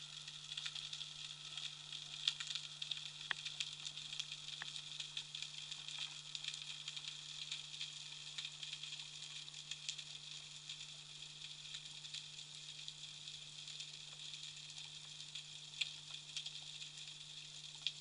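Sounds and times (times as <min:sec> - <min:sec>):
low steady hum: 0:00.0 - 0:18.0
underwater crackle of clicks: 0:00.0 - 0:18.0.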